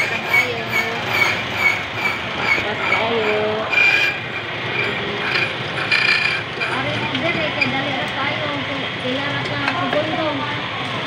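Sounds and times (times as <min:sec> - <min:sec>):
key cutting machine whining: 0:00.0 - 0:07.8.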